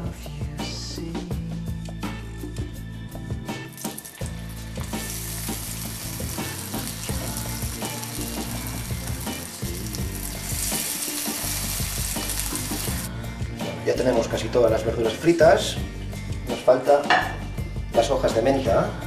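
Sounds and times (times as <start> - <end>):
vegetables deep-frying in hot oil: 3.7 - 13.1.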